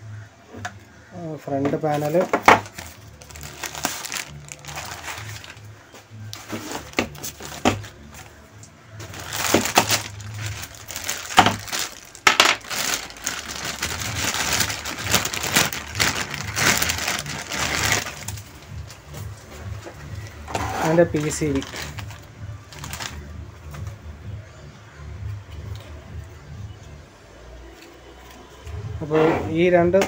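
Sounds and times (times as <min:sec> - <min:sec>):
plastic bags crinkling: 0:01.7 - 0:08.3, 0:09.0 - 0:23.9.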